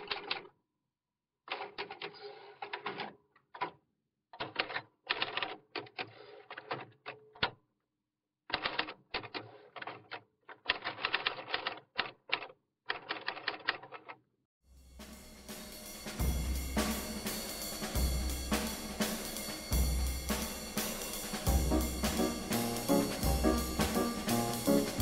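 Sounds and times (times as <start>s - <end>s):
typewriter keystrokes clattering: 4.4s - 7.2s, 8.5s - 14.1s.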